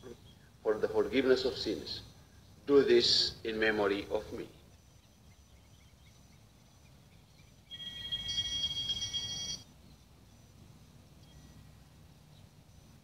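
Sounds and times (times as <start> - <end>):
altar bells ringing: 7.7 - 9.6.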